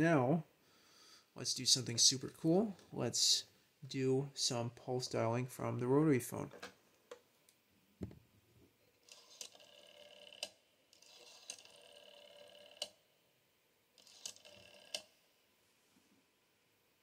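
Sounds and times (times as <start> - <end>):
rotary dial whirring: 9.0 - 13.0, 14.0 - 15.1.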